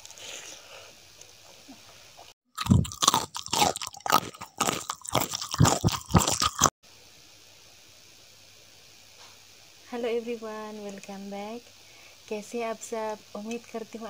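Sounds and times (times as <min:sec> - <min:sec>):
crunching and chewing crisp food: 0:02.5 - 0:06.8.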